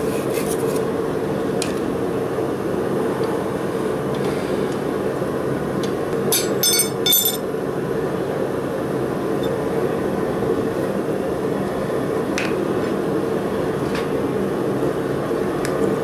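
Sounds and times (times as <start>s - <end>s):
steady background noise: 0.0s - 16.0s
metal tongs clinking on anvil: 6.3s - 7.4s.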